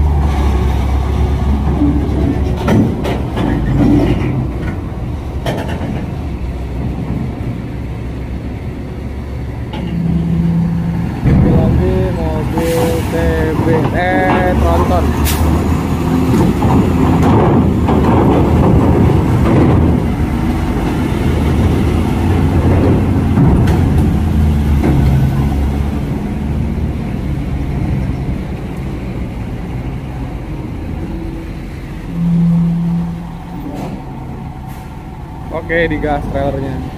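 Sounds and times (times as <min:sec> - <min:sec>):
diesel truck engine under load: 0:00.0 - 0:36.9.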